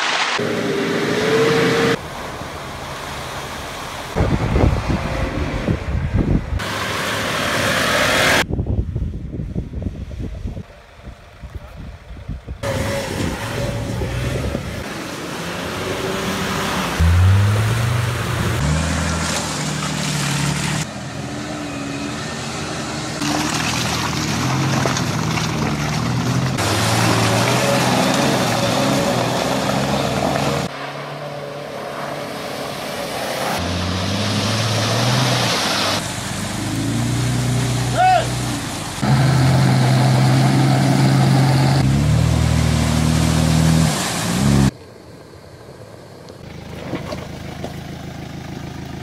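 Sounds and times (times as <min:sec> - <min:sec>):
vehicle splashing through water: 0:00.0 - 0:08.5, 0:12.6 - 0:44.8, 0:46.1 - 0:49.0
off-road engines revving hard: 0:00.4 - 0:02.0, 0:12.6 - 0:44.8.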